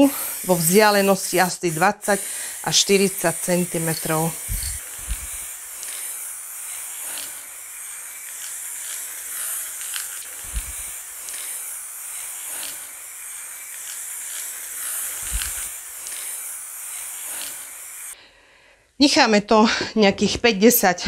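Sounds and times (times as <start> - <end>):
aerosol spray paint hissing: 0.0 - 18.2.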